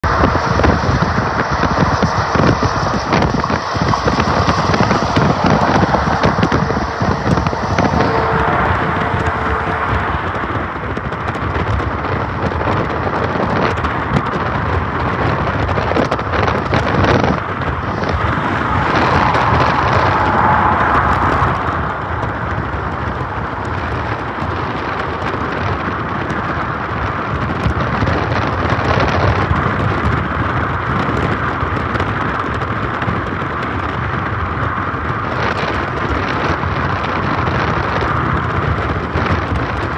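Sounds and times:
road traffic rushing: 0:00.0 - 0:39.9
wind buffeting microphone: 0:00.0 - 0:39.9.

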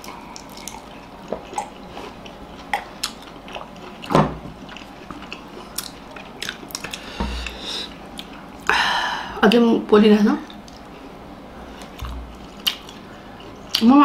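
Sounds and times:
people chewing dumplings: 0:00.0 - 0:08.8, 0:10.4 - 0:13.9
mouth clicks and smacks: 0:11.8 - 0:13.0.

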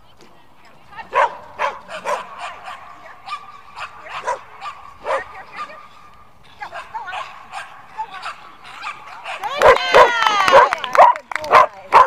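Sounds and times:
dog yipping: 0:01.2 - 0:06.1.

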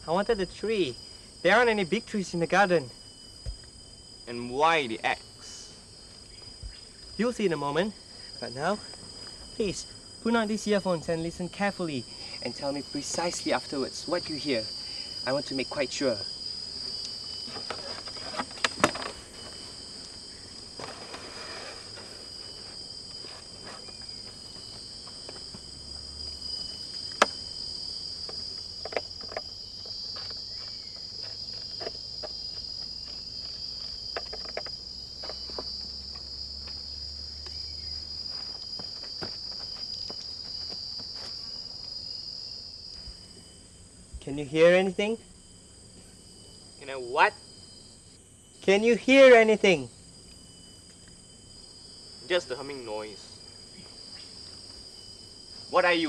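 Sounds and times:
high insect chorus: 0:00.0 - 0:56.0.

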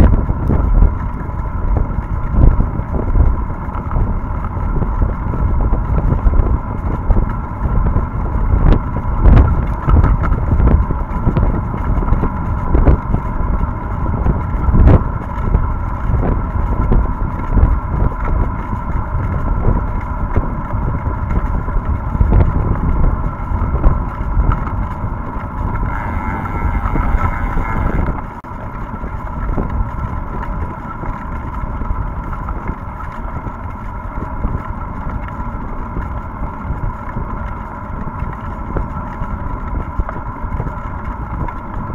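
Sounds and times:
wind buffeting microphone: 0:00.0 - 0:41.9.

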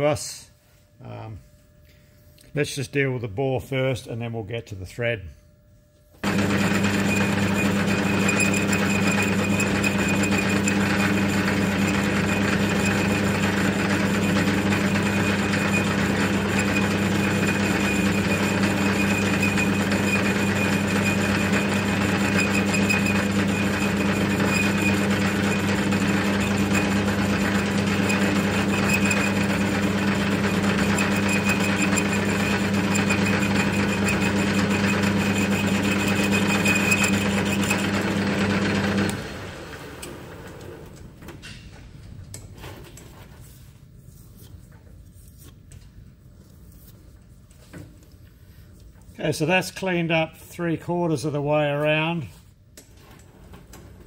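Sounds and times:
metal lathe humming: 0:06.2 - 0:40.6.

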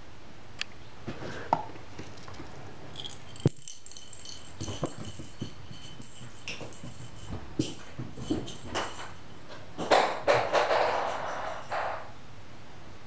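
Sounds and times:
cat toy ball rattling and jingling: 0:02.9 - 0:12.1.

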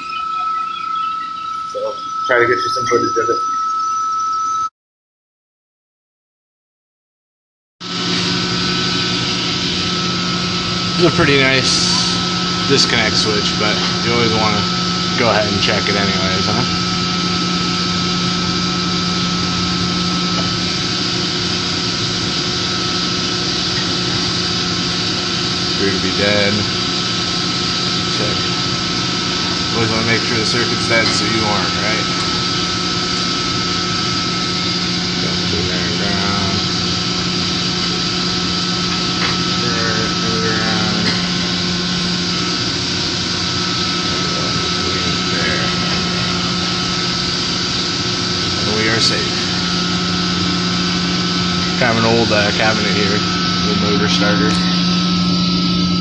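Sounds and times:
faint high steady tone: 0:00.0 - 0:04.7, 0:27.9 - 0:56.0
faint high whine: 0:00.0 - 0:04.7, 0:07.8 - 0:56.0
machinery drone: 0:00.0 - 0:04.7, 0:07.8 - 0:56.0.

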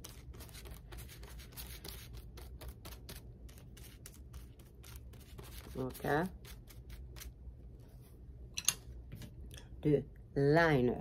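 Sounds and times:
paintbrush brushing on paper: 0:00.0 - 0:08.2.

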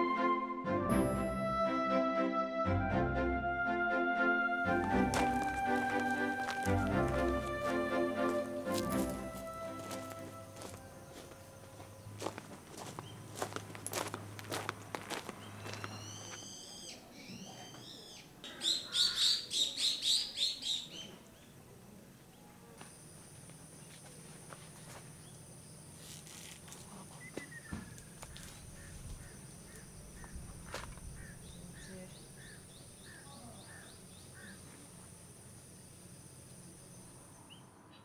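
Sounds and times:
bird chirps: 0:15.4 - 0:21.6, 0:27.2 - 0:34.7.

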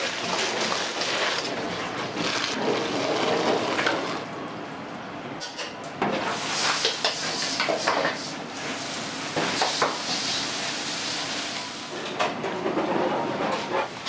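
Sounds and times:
food sizzling in a wok: 0:00.0 - 0:04.2, 0:06.2 - 0:12.0.

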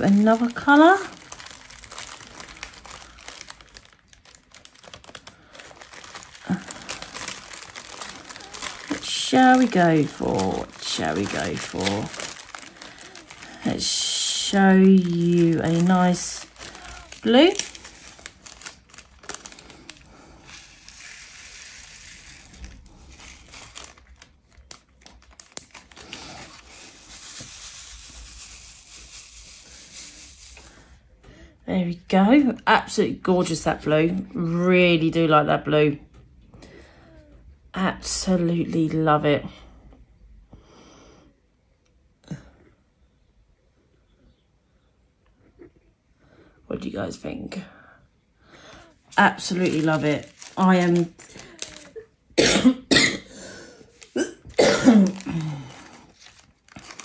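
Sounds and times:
plastic beads rattling into tray: 0:00.0 - 0:24.2, 0:49.2 - 0:52.0
plastic bags crinkling: 0:00.0 - 0:30.9, 0:48.7 - 0:57.0.

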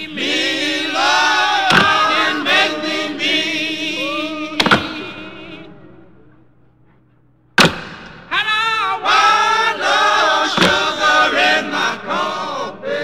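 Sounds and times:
voices singing a song: 0:00.0 - 0:06.2, 0:08.3 - 0:13.0
sharp percussive hit: 0:07.6 - 0:08.4.

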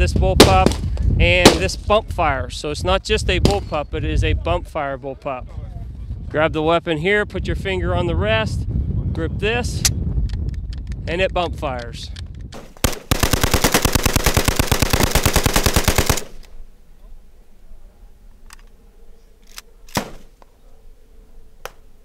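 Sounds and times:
rifle gunshots: 0:01.4 - 0:01.7, 0:12.6 - 0:16.6, 0:19.9 - 0:20.3
rapid rifle fire burst: 0:12.7 - 0:16.4.

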